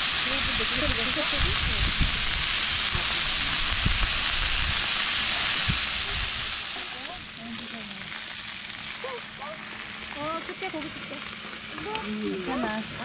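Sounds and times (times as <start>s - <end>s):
meat sizzling in a pan: 0.0s - 13.0s.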